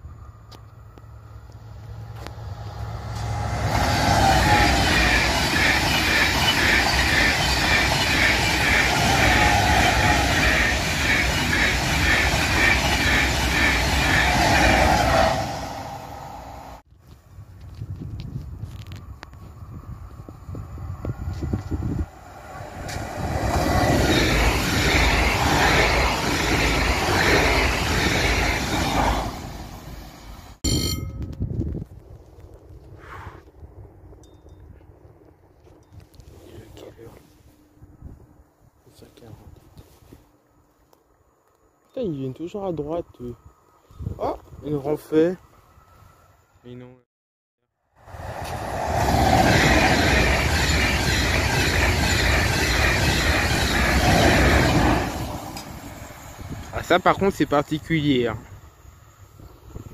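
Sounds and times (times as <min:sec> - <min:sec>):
high-speed train passing: 0:00.0 - 0:16.9, 0:19.0 - 0:31.0, 0:47.8 - 0:59.9.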